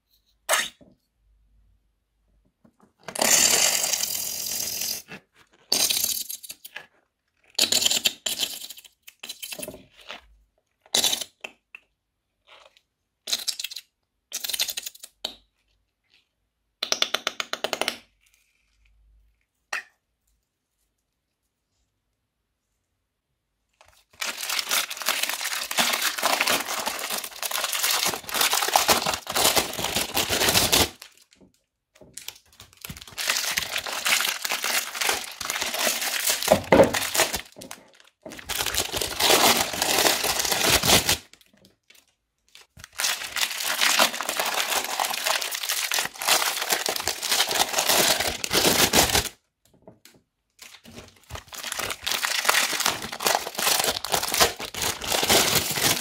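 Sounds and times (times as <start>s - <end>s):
foam beads crackling and crunching: 24.2s - 31.1s, 42.9s - 49.3s, 51.3s - 56.0s.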